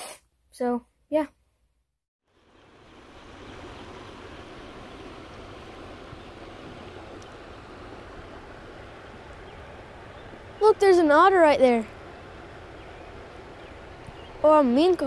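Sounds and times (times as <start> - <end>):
stream water rushing: 2.4 - 15.0.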